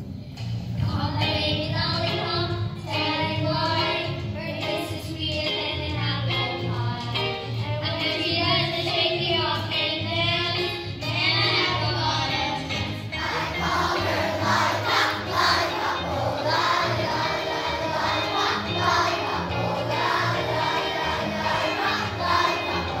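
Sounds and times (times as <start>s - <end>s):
instrumental accompaniment: 0.3s - 23.0s
children's choir singing: 11.0s - 23.0s.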